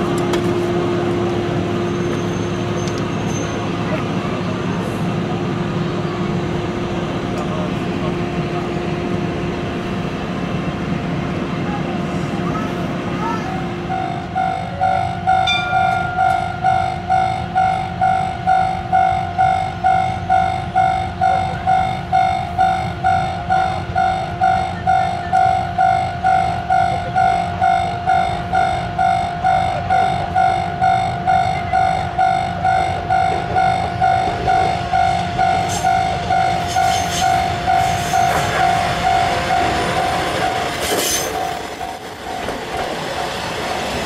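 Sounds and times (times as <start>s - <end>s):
sharp clicks from railcar: 0.0s - 1.4s, 2.1s - 4.2s, 7.3s - 7.6s, 15.7s - 16.5s, 35.4s - 36.0s, 36.6s - 44.0s
diesel railcar approaching: 0.0s - 44.0s
level crossing warning bell: 13.5s - 40.8s.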